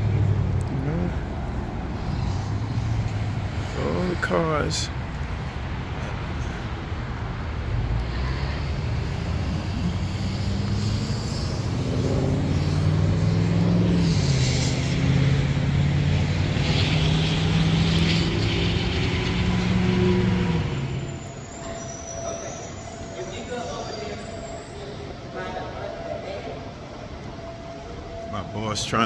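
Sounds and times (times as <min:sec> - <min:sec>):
vehicle engine passing by: 0:07.5 - 0:21.3.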